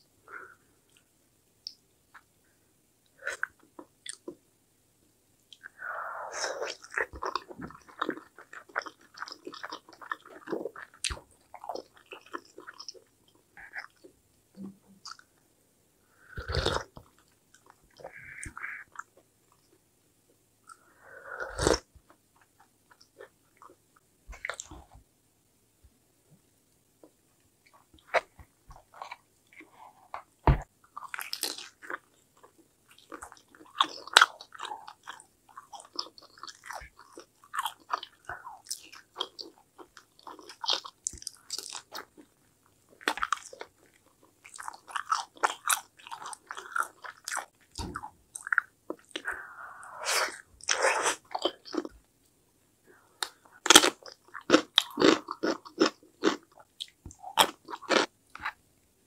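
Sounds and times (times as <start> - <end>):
crunchy biting of fried pork: 53.6 - 56.4.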